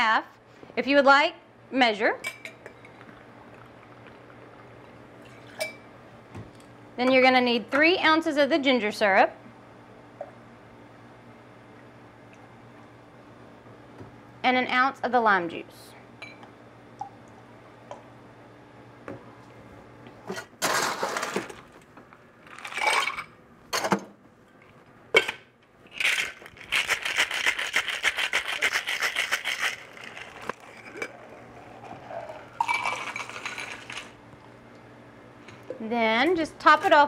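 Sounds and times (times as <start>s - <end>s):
ice rattling in shaker: 22.5s - 23.2s, 25.9s - 34.2s
drink poured into glass: 30.6s - 34.1s
ice cubes dropped into shaker: 32.6s - 34.2s.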